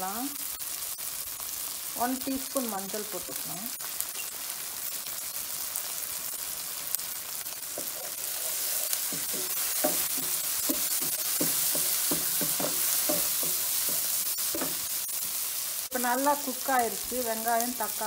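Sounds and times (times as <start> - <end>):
vegetables sizzling in oil: 0.0 - 18.0
spoon scraping against pan: 7.7 - 15.4.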